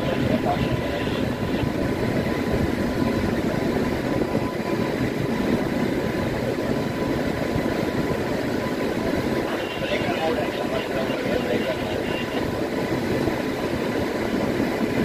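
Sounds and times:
freight train rumbling and rattling: 0:00.0 - 0:15.0.

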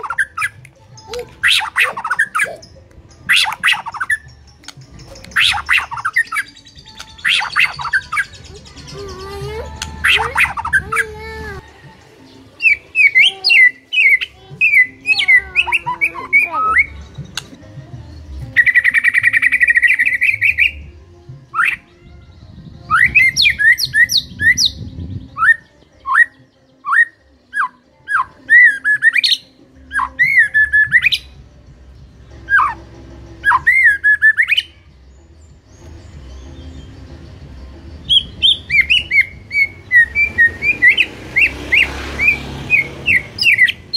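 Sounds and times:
buzzy rattling bird trill: 0:00.0 - 0:11.7
bird singing whistled phrases: 0:05.0 - 0:10.9, 0:12.6 - 0:17.0, 0:18.5 - 0:20.8, 0:22.9 - 0:31.3, 0:33.4 - 0:34.8, 0:38.0 - 0:43.9.

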